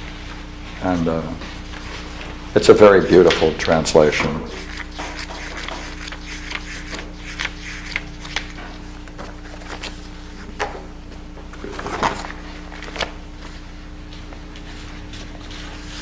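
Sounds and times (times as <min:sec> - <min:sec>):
low electrical hum: 0:00.0 - 0:16.0
paper rustling: 0:04.1 - 0:10.5.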